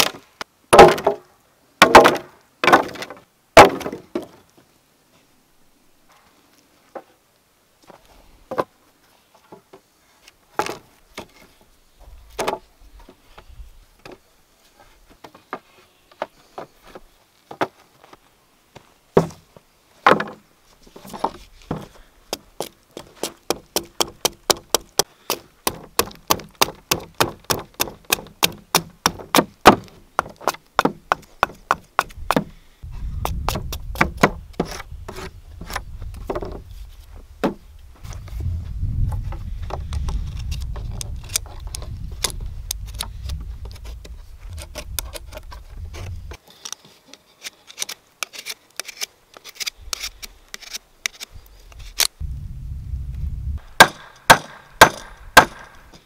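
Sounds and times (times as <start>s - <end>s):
hatchet chopping wood: 0.0s - 1.2s, 1.8s - 3.0s, 3.6s - 4.0s, 23.2s - 32.5s, 33.2s - 34.8s, 53.8s - 55.8s
wooden poles clattering: 0.0s - 1.2s, 1.8s - 4.5s, 19.2s - 22.0s, 33.6s - 38.1s
low rumble: 37.8s - 46.3s, 52.2s - 53.8s.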